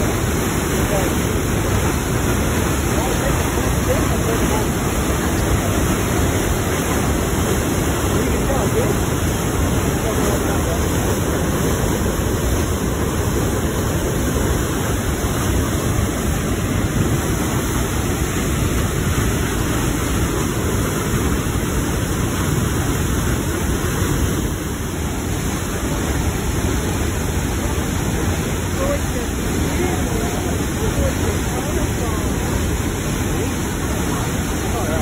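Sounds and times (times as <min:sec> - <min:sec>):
whitewater rushing over waterfall: 0:00.0 - 0:35.0.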